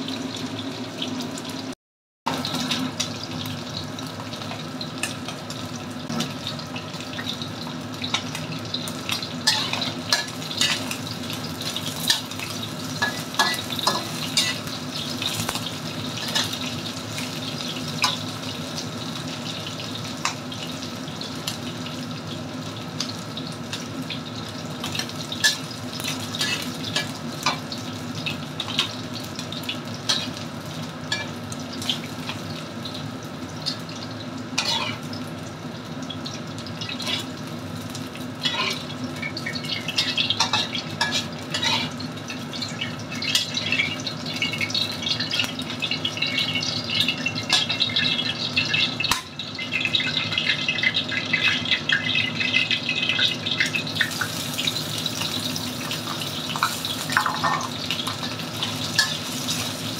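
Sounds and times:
chicken sizzling in oil: 0.0s - 59.9s
metal utensils scraping a wok: 9.5s - 11.0s, 26.3s - 27.6s, 34.6s - 35.0s, 37.0s - 37.3s, 38.4s - 38.9s, 39.6s - 42.0s, 56.6s - 59.8s.

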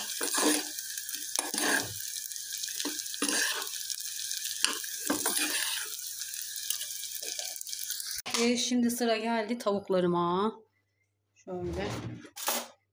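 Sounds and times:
food sizzling in hot oil: 0.0s - 8.3s.

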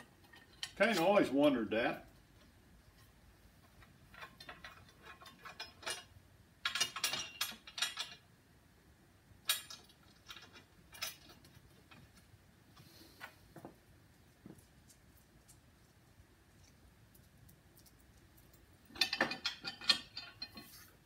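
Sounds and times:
bolts and nuts clinking on metal: 0.0s - 8.3s, 9.4s - 13.4s, 16.6s - 21.0s.

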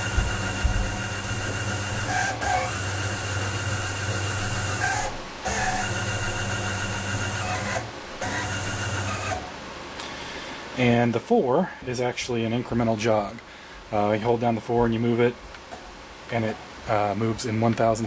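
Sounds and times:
stepper motors whining: 0.0s - 9.5s.

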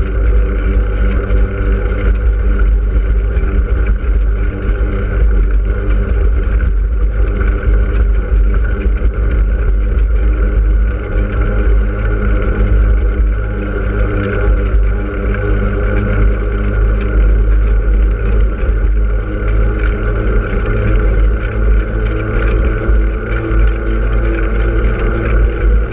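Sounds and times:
steady hum: 0.0s - 25.9s
wind rumble: 0.0s - 25.9s.

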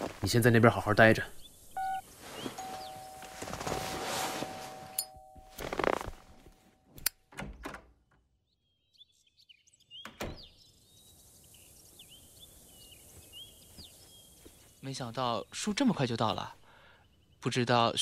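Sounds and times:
faint chirps: 1.0s - 5.2s, 8.8s - 17.5s
rustling and clatter: 2.1s - 6.6s.

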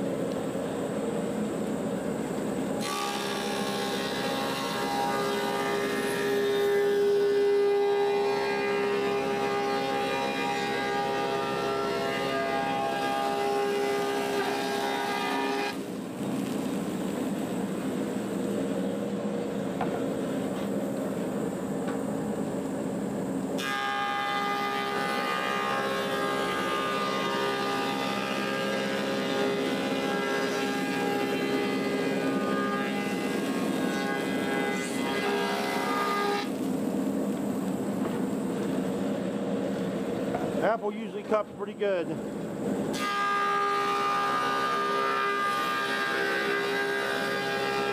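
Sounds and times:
planer cutting wood: 2.8s - 16.4s, 23.6s - 36.6s, 42.9s - 47.9s
planer whining: 2.8s - 16.4s.

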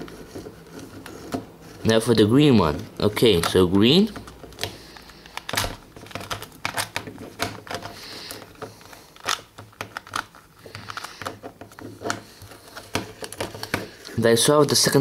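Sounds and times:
puzzle cube clicking as turned: 9.2s - 11.4s.

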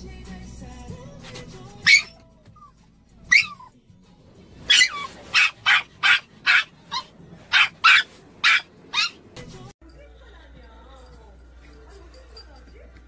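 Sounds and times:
small dog barking: 1.8s - 2.2s, 3.3s - 3.7s, 4.7s - 9.2s.

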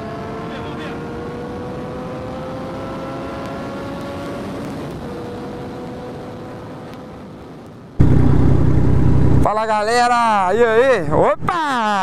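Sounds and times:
motorcycle engine accelerating: 0.0s - 7.2s, 8.0s - 9.5s.

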